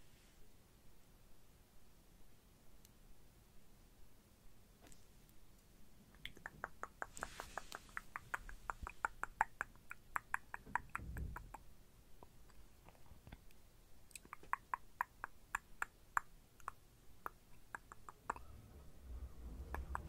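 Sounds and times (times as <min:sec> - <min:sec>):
wet lip and tongue clicks: 0:06.1 - 0:18.5, 0:19.7 - 0:20.0.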